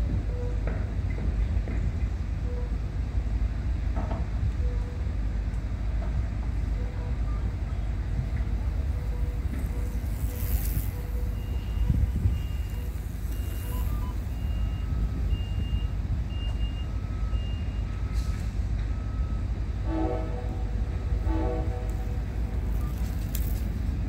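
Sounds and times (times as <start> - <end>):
steady low rumble: 5.2 - 17.4
electronic warning beeps: 8.8 - 18.3, 22.4 - 23.2.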